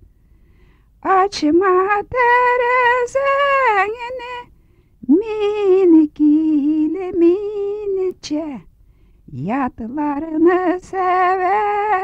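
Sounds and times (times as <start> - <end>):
woman singing unaccompanied: 1.0 - 8.7, 9.3 - 12.0.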